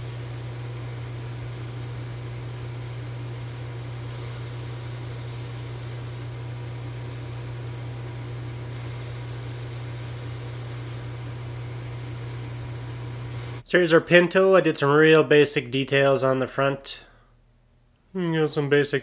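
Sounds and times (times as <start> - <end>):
airbrush hissing: 0.0 - 13.6.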